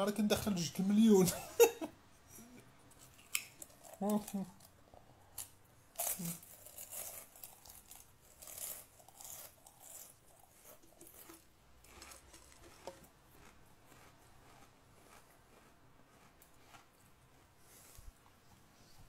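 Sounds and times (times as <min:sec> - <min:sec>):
person chewing crunchy food: 0:02.9 - 0:18.0.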